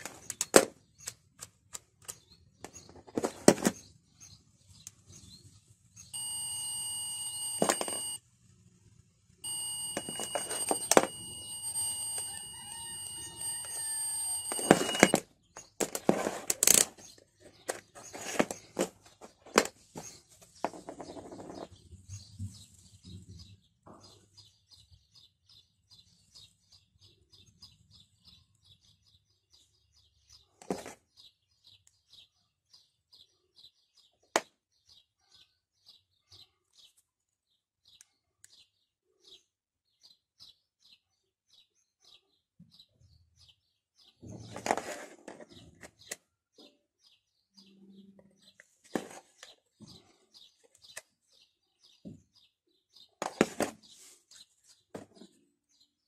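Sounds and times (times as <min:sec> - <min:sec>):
sharp clicks: 0:00.0 - 0:02.4
multimeter continuity beep: 0:06.0 - 0:08.2, 0:09.4 - 0:15.2.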